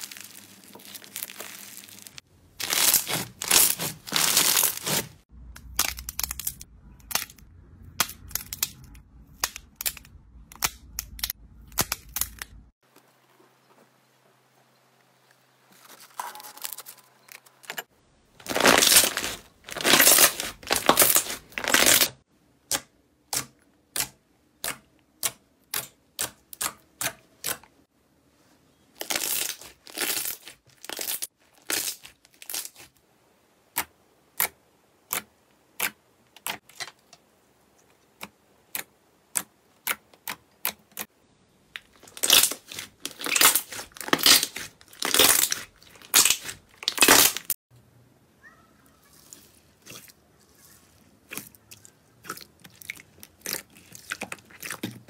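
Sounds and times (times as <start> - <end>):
slime squelching: 0.0 - 9.9, 18.4 - 22.2, 41.8 - 47.5, 49.0 - 55.0.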